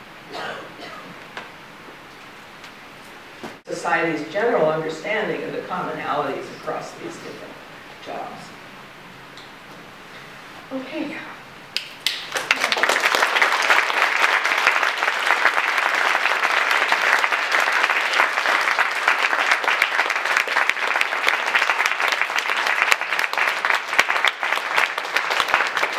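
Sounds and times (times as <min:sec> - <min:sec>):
audience applauding: 0:11.8 - 0:25.9.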